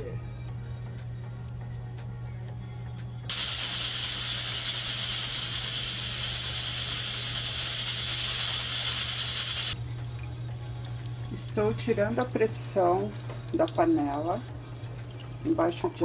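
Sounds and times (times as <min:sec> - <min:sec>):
pressure cooker hissing: 0:03.3 - 0:10.0.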